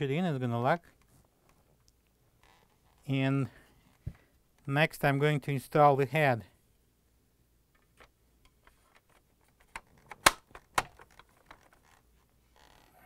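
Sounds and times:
sharp plastic clicks: 0:09.5 - 0:11.7.

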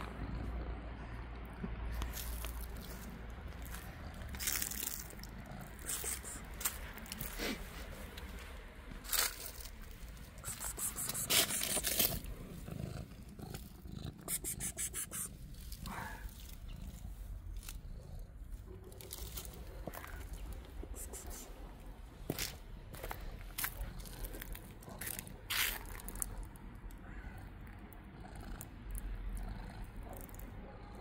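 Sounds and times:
handling clicks and scrapes: 0:09.1 - 0:12.4.

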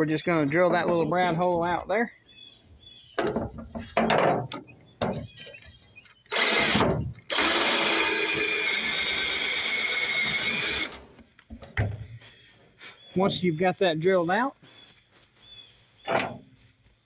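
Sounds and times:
cordless drill drilling: 0:06.3 - 0:11.0.

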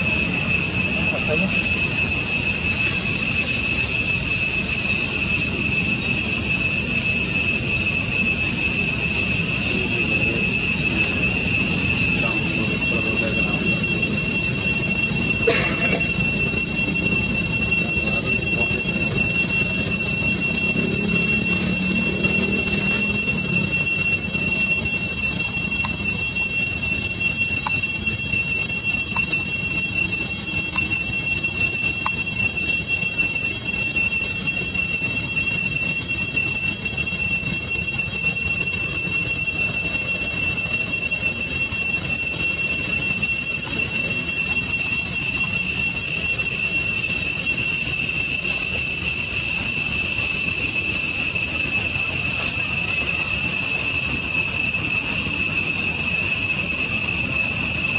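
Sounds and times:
cicadas droning: 0:00.0 - 0:57.9.

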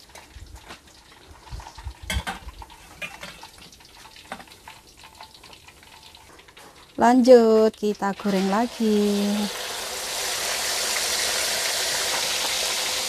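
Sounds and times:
hot oil sizzling in a frying pan: 0:00.0 - 0:13.0
utensil knocking and scraping pan: 0:02.1 - 0:04.6.

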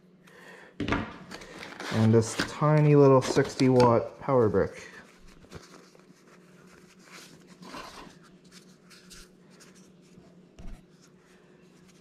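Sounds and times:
faint steady hum: 0:00.0 - 0:12.0
fabric rustling and rubbing: 0:05.0 - 0:12.0.

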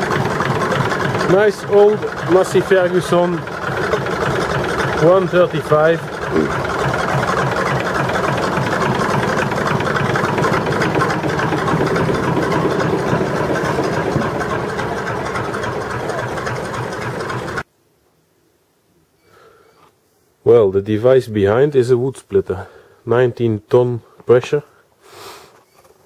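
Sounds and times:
diesel engine running: 0:00.0 - 0:17.6.

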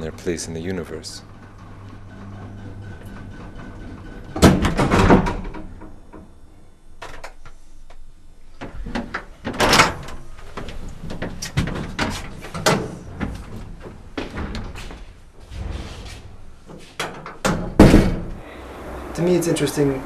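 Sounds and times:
lift doors clattering and banging: 0:01.3 - 0:06.4, 0:08.6 - 0:19.2
lift humming: 0:12.1 - 0:17.4, 0:18.2 - 0:20.0.

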